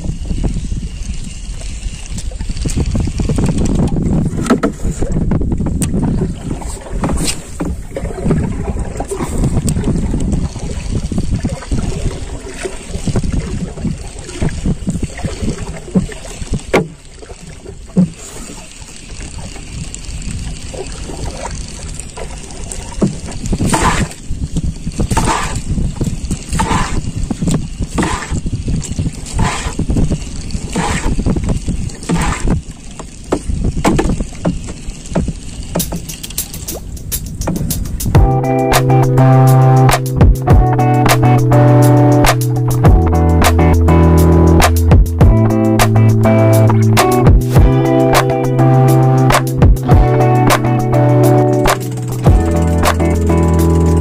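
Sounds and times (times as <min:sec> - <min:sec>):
water lapping against canoe hull: 0:00.0 - 0:39.1
wind on microphone: 0:00.0 - 0:54.0.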